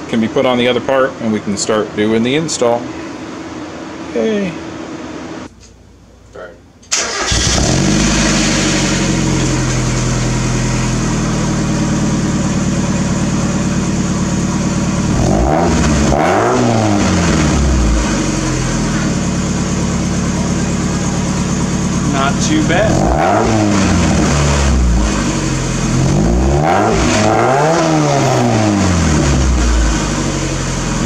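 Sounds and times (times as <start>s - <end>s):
car engine idling and revving: 6.9s - 31.0s.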